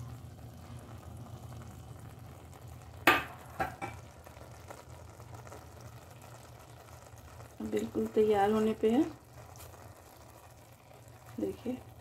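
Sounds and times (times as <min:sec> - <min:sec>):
metal clink on cooking pot: 0:03.1 - 0:04.0.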